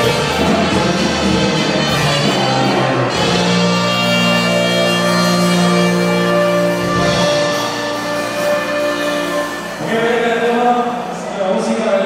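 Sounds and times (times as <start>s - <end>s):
live band playing held chords: 0.0s - 12.0s.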